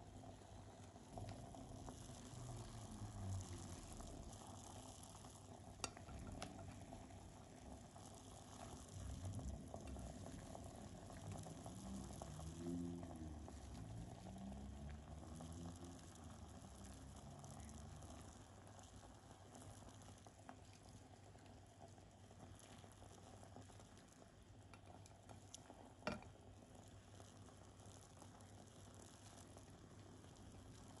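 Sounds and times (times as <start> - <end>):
broth bubbling: 0.0 - 31.0.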